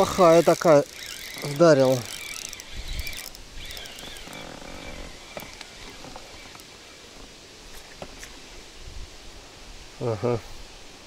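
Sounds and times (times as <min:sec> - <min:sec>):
spinning reel cranking: 0:00.0 - 0:06.6
wind rumble on microphone: 0:02.7 - 0:03.8, 0:08.4 - 0:11.0.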